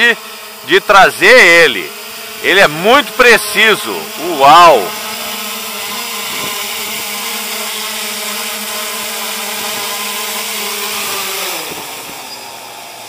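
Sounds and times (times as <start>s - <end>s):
drone motors and propellers buzzing: 0.0s - 13.0s.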